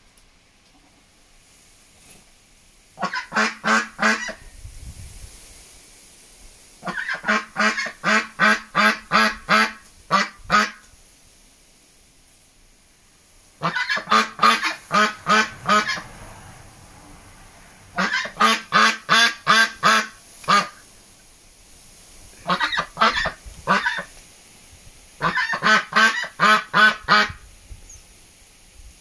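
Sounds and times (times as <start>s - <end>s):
duck quacking loudly: 3.0s - 4.4s, 6.8s - 10.8s, 13.6s - 16.4s, 17.9s - 20.8s, 22.4s - 24.1s, 25.2s - 27.4s.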